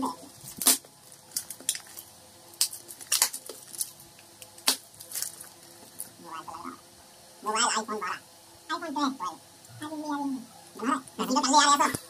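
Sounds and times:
bubble wrap crinkling: 0.0s - 6.3s.

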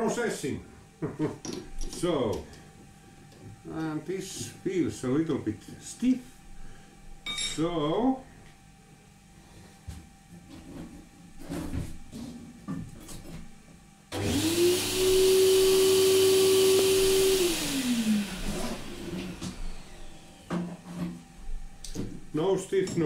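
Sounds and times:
electric motor humming: 14.1s - 20.6s.

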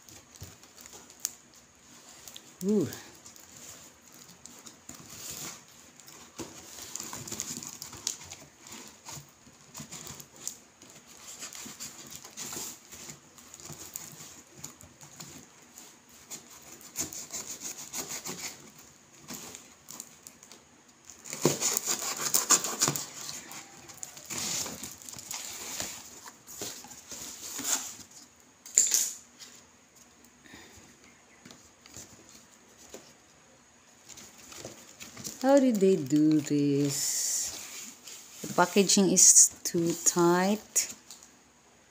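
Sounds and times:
knife cutting tape and cardboard: 21.2s - 28.1s
cardboard box rubbing and rustling: 21.2s - 28.2s.

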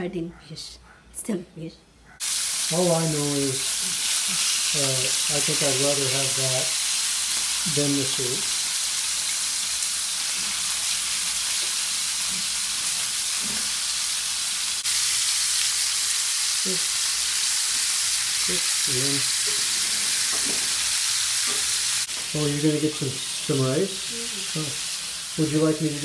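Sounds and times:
fish frying in hot oil: 2.2s - 26.0s.

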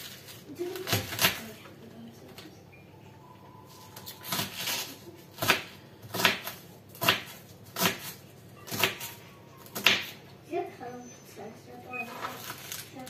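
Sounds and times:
knife chopping cabbage on board: 4.2s - 10.2s.

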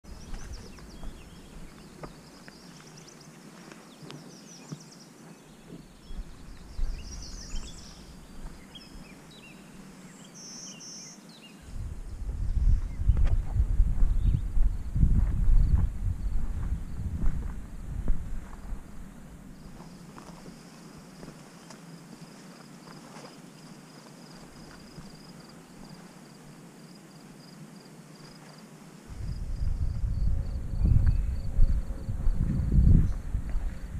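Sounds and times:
songbirds chirping and twittering: 0.0s - 33.9s
faint outdoor hiss: 0.1s - 33.9s
low rumble on microphone: 11.6s - 19.9s, 29.1s - 33.9s.

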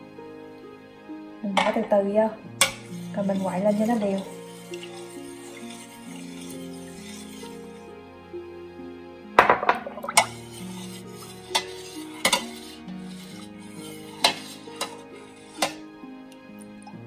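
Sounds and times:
soft background music: 0.0s - 17.0s
spoon clinking against pot: 2.6s - 7.3s, 9.4s - 13.4s, 14.1s - 15.8s.

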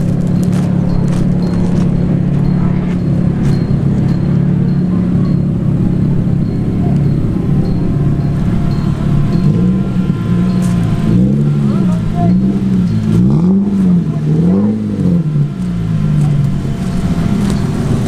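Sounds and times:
cars idling exhaust rumble: 0.0s - 18.0s.

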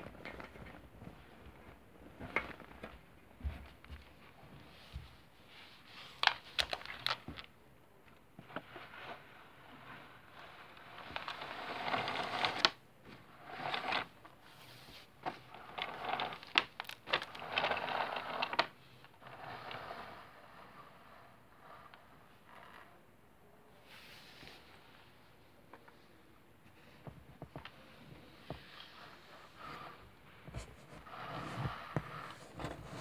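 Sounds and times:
paper rustling and scraping on wood: 28.3s - 33.0s.

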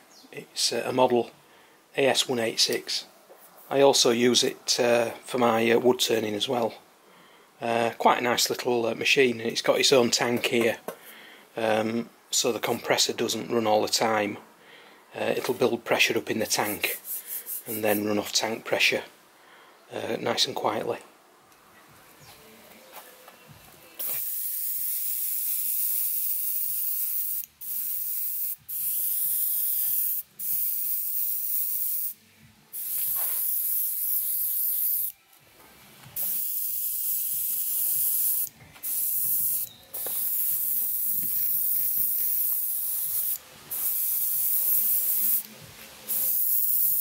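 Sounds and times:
airbrush hissing: 16.5s - 18.2s, 24.0s - 35.2s, 36.2s - 47.0s.

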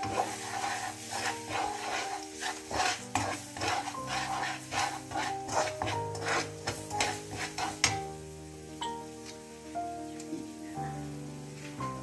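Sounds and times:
spatula scraping wok: 0.0s - 8.2s.

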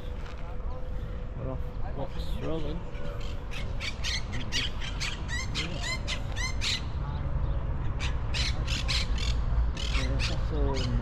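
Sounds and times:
birds squawking: 2.5s - 7.1s, 7.8s - 11.0s.

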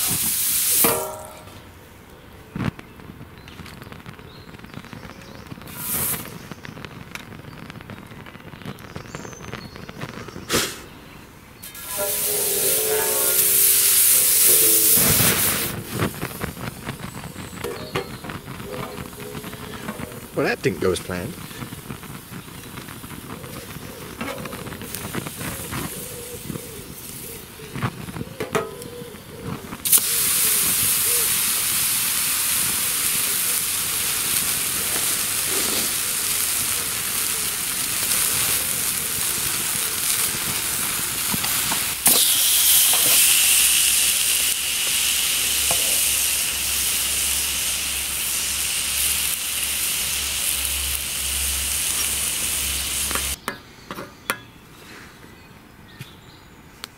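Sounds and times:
steak sizzling on a griddle: 0.0s - 1.4s, 5.2s - 6.5s, 11.6s - 53.4s
wood fire crackling: 0.0s - 53.4s.

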